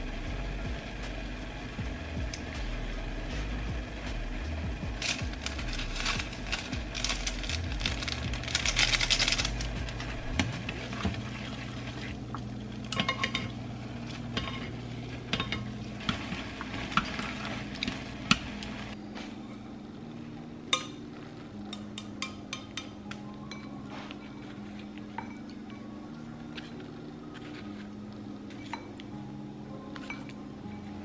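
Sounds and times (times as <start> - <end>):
sizzling: 0.0 - 19.0.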